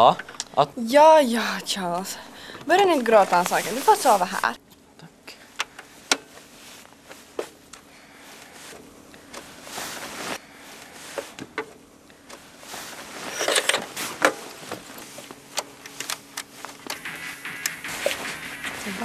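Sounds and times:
noisy stretches: 0:00.0 - 0:04.6, 0:16.9 - 0:19.0.

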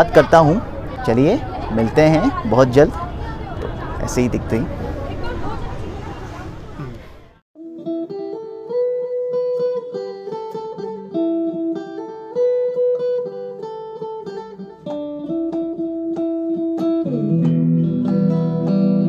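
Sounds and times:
guitar plucking melody: 0:07.6 - 0:19.0.

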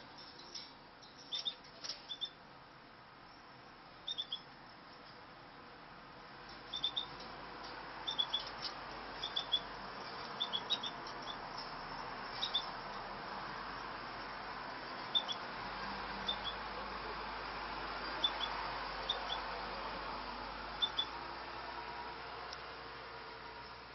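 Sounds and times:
finches chirping: 0:01.1 - 0:02.4, 0:04.0 - 0:04.5, 0:06.7 - 0:07.2, 0:08.0 - 0:11.5, 0:12.3 - 0:12.8, 0:15.0 - 0:15.5, 0:16.2 - 0:16.7, 0:18.1 - 0:19.5, 0:20.8 - 0:21.2.

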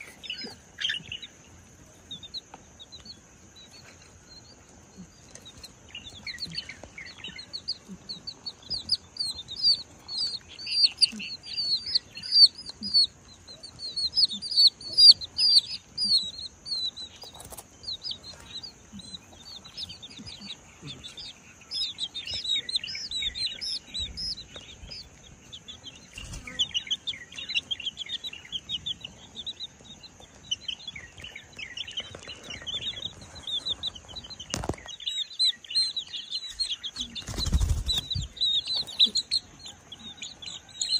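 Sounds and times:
chicks peeping: 0:00.0 - 0:40.9.

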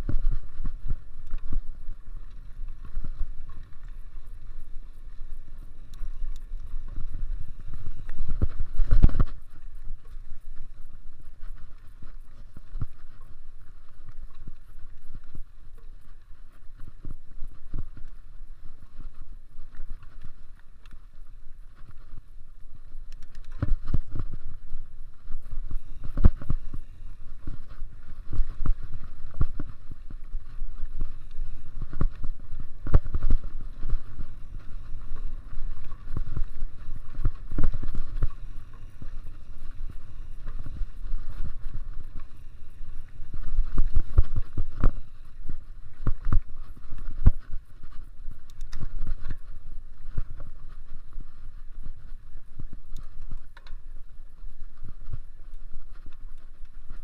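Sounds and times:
bike tyre and wind rumble: 0:00.0 - 0:57.0
bike rattling: 0:22.9 - 0:55.1.

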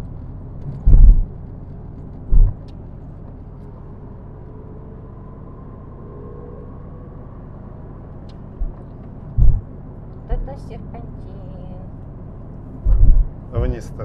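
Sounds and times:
car road and engine rumble: 0:00.0 - 0:14.0
low thump: 0:00.7 - 0:01.3, 0:02.2 - 0:02.7, 0:08.6 - 0:09.7, 0:12.8 - 0:13.4.

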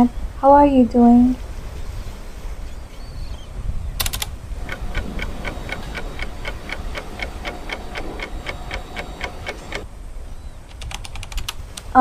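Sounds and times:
rattle of sharp clicks: 0:04.0 - 0:09.9, 0:10.7 - 0:12.0
clock ticking: 0:04.6 - 0:09.9.

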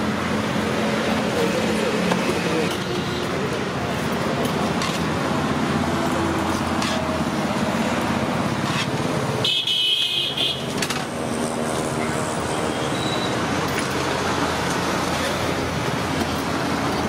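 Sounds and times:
road traffic: 0:00.0 - 0:17.0
vehicle horns honking: 0:09.4 - 0:10.8.

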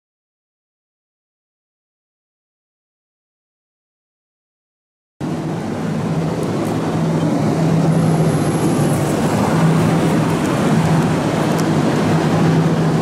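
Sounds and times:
constant low hum: 0:05.2 - 0:13.0
traffic rumble: 0:05.2 - 0:13.0.

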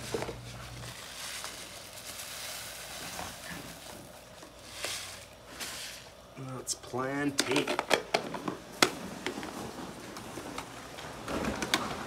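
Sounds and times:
seeds pattering and rustling: 0:00.0 - 0:06.0.

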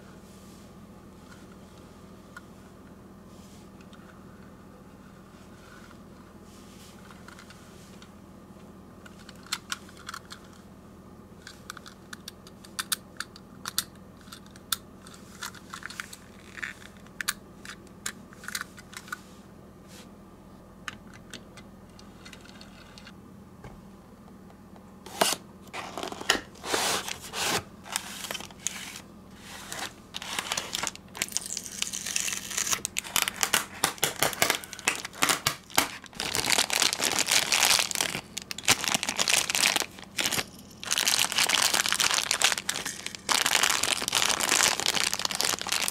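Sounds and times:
plastic bags crinkling: 0:30.2 - 0:45.9.

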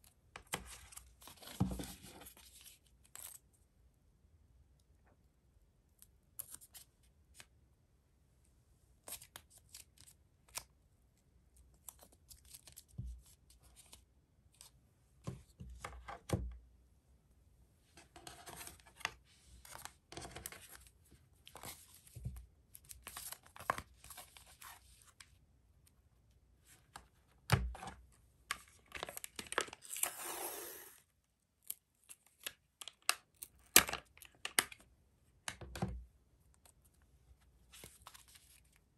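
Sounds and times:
paper tape peeling and tearing: 0:29.8 - 0:31.0.

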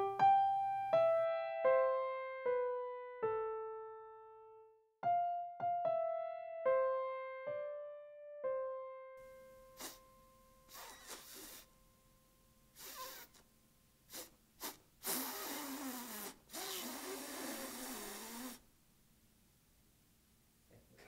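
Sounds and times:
piano note: 0:00.0 - 0:10.5
man's breathy hissing vocal noises: 0:09.7 - 0:10.1, 0:10.7 - 0:11.7, 0:12.8 - 0:13.4, 0:14.1 - 0:18.6.

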